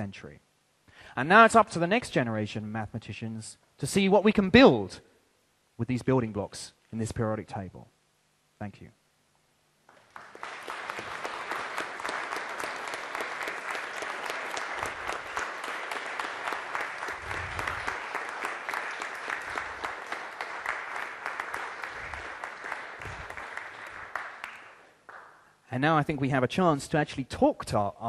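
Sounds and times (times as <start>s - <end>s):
audience applauding: 9.9s - 25.4s.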